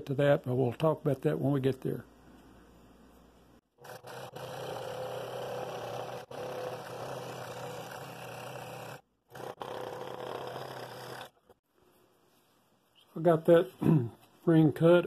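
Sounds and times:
scroll saw cutting wood: 3.8 - 11.6.

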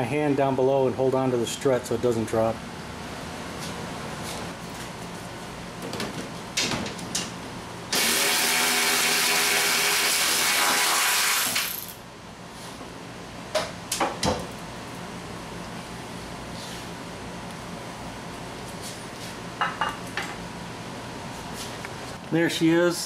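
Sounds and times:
cordless power tool running: 7.9 - 11.9.

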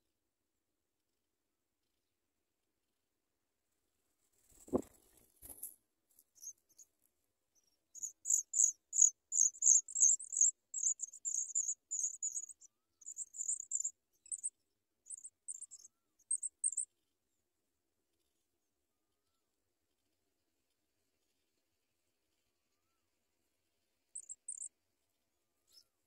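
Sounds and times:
nestlings cheeping: 8.0 - 12.5.

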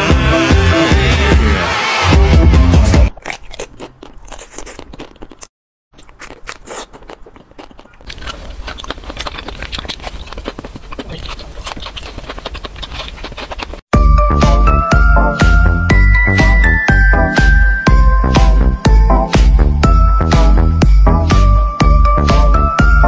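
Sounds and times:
loud music: 0.0 - 3.1
crunchy biting and chewing: 3.1 - 13.9.

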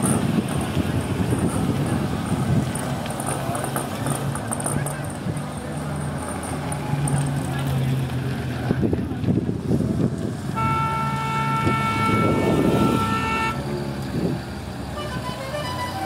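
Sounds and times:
car engines driving slowly: 0.0 - 16.0
old car horn: 10.6 - 13.7, 15.0 - 16.0.

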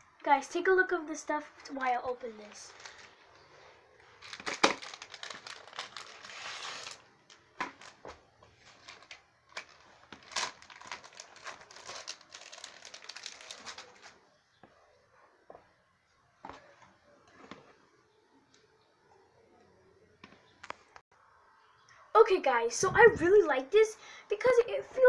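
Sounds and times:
plastic wrapping tearing and crinkling: 2.4 - 3.2, 4.0 - 14.2.

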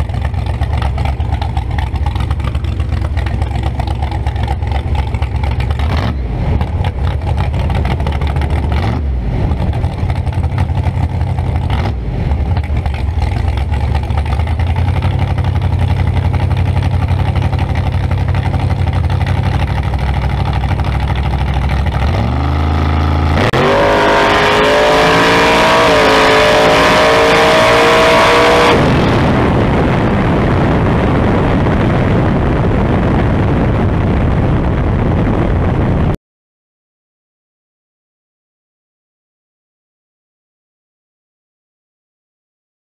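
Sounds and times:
drag car engine revving: 0.0 - 34.8
wind rushing: 23.3 - 36.2.

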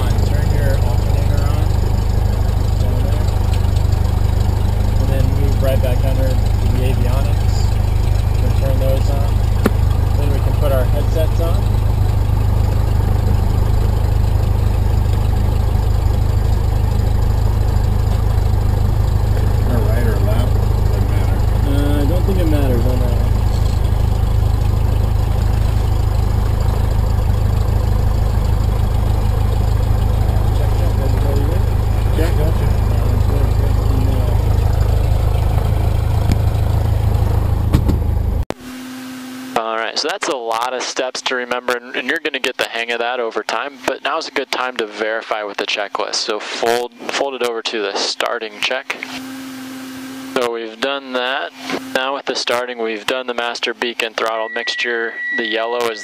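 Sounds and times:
light aircraft engine idling: 0.0 - 38.5
steady low hum: 0.0 - 38.5.

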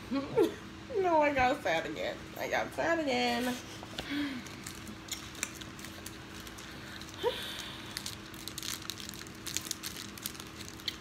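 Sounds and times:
plastic wrapper crinkling: 4.3 - 11.0.

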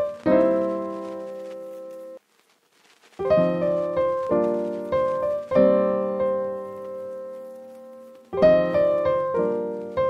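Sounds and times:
piano chords: 0.0 - 2.2, 3.2 - 10.0.

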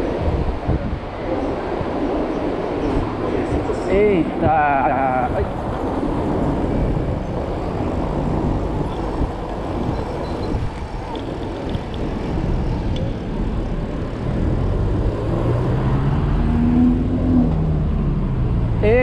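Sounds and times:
road traffic rumble: 0.0 - 19.0
vehicle engine accelerating: 12.1 - 19.0.

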